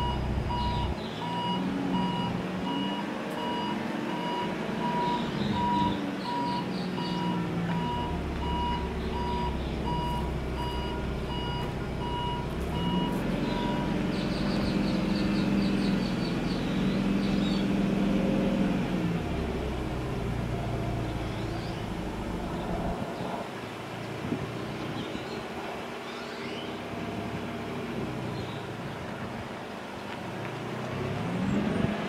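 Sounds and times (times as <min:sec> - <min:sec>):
forklift reverse alarm beeping: 0:00.0 - 0:14.0
forklift engine running: 0:00.0 - 0:23.3.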